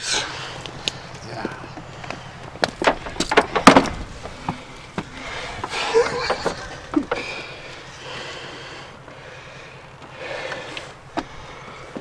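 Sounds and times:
sharp knocks: 0:02.6 - 0:05.1
person breathing hard: 0:04.4 - 0:12.0.

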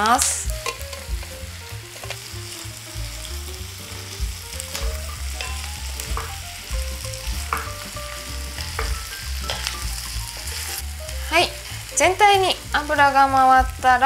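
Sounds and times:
vegetables sizzling in butter: 0:00.0 - 0:14.0.

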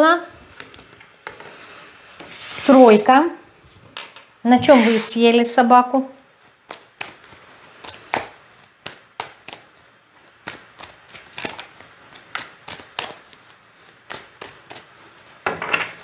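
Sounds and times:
cards being shuffled: 0:06.4 - 0:15.4.

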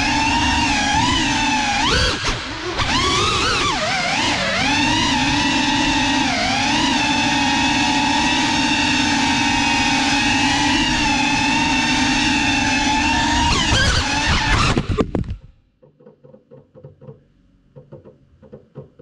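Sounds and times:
drone propellers whining: 0:00.0 - 0:15.4.

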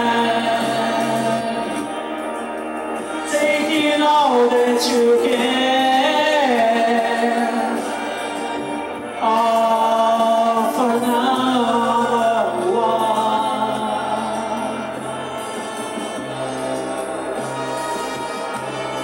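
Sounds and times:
backing track: 0:00.0 - 0:19.0
woman singing wordless notes: 0:09.1 - 0:16.1.

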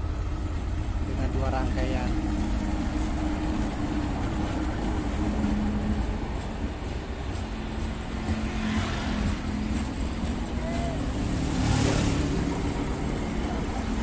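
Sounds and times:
diesel engine drone: 0:00.0 - 0:14.0
train running gear rumble: 0:00.0 - 0:14.0.

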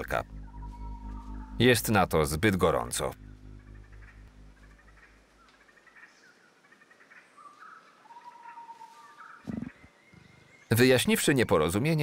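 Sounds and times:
low hum: 0:00.0 - 0:06.0
birds chirping: 0:00.0 - 0:12.0.

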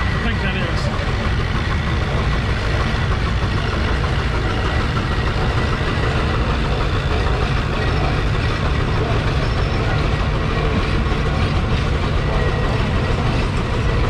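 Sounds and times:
steam traction engine running: 0:00.0 - 0:14.0.

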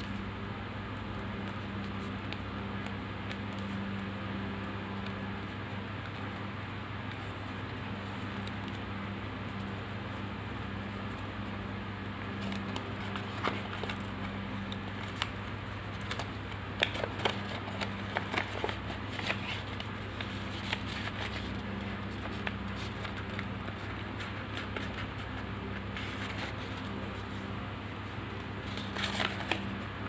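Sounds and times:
stiff paper crackling: 0:07.1 - 0:30.0.

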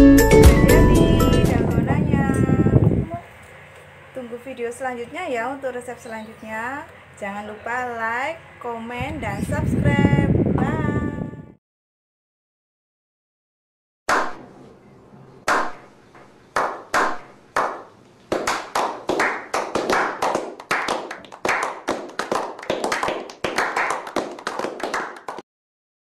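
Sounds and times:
people clapping: 0:15.5 - 0:15.8, 0:16.6 - 0:25.4.

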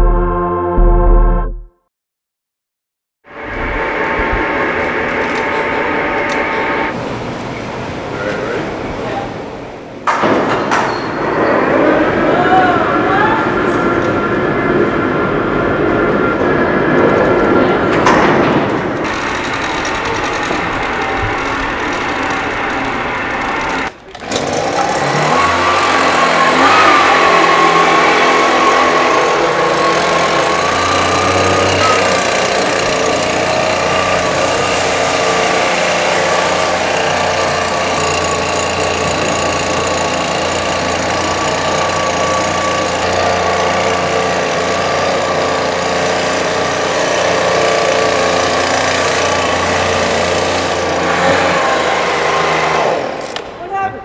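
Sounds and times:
leaf blower engine running: 0:03.3 - 0:07.0, 0:19.0 - 0:53.6.

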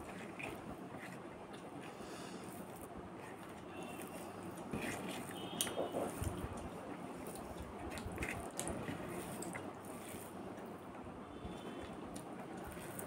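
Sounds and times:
chewing: 0:00.0 - 0:10.7, 0:11.6 - 0:13.0
fingers squishing rice: 0:00.0 - 0:13.0.

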